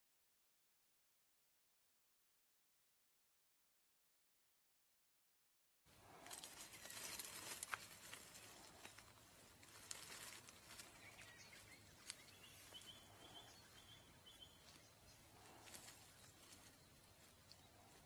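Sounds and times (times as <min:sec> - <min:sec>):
dry leaves crackling and rustling: 0:06.1 - 0:13.8, 0:14.4 - 0:18.0.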